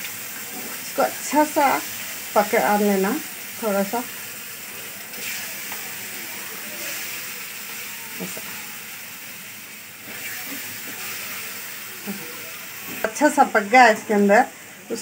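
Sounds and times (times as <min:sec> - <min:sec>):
spatula stirring in pan: 0:00.0 - 0:14.1
paste sizzling in frying pan: 0:00.0 - 0:15.0.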